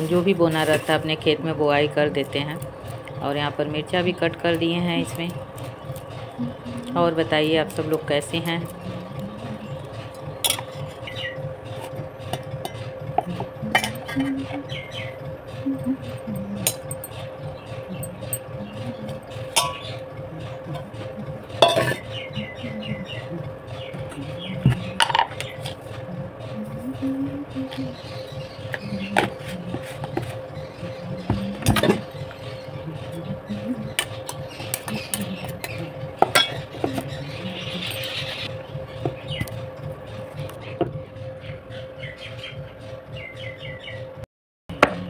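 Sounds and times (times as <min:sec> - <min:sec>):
metal scraping: 0:00.0 - 0:41.9
faint hum: 0:00.0 - 0:45.0
utensils clinking on steel pot: 0:10.1 - 0:11.1, 0:11.8 - 0:14.6, 0:17.9 - 0:22.1, 0:25.0 - 0:25.8, 0:31.3 - 0:32.2, 0:33.9 - 0:38.3
steel bowl clinking against pot: 0:19.3 - 0:20.9, 0:21.5 - 0:22.1, 0:34.0 - 0:37.0.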